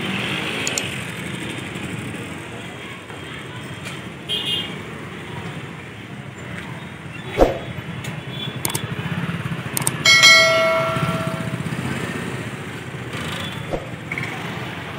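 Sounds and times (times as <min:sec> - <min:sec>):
click: 0:00.6 - 0:00.9, 0:08.0 - 0:08.8, 0:09.8 - 0:10.0
bell ding: 0:10.1 - 0:11.8.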